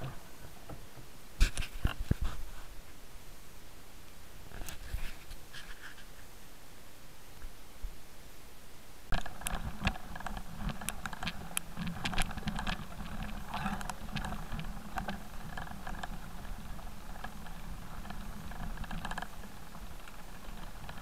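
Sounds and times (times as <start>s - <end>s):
bike rattling: 9.1s - 21.0s.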